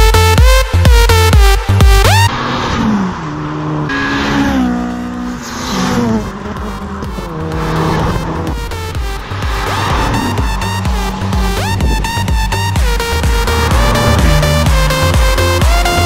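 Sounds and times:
electronic dance music: 0.0 - 2.3, 6.6 - 16.0
cars driving past: 2.1 - 16.0.

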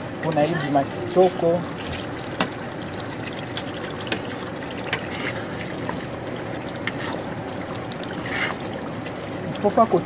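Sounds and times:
pot bubbling at a boil: 0.0 - 10.0
spoon stirring pot: 1.1 - 7.4.

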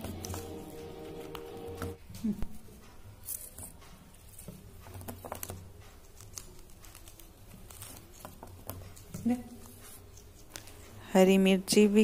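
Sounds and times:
pea pods splitting by hand: 0.0 - 1.9.

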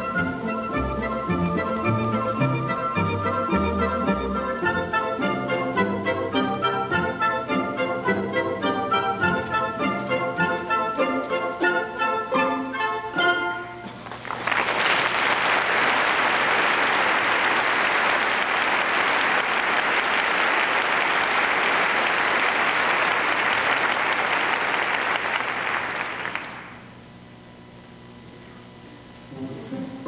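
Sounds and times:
audience applauding: 14.0 - 26.8.

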